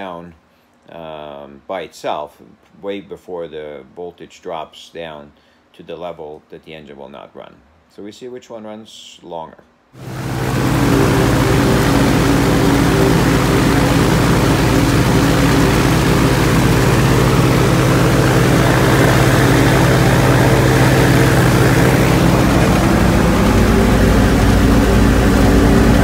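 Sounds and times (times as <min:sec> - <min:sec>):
aircraft engine running: 0:10.0 - 0:26.0.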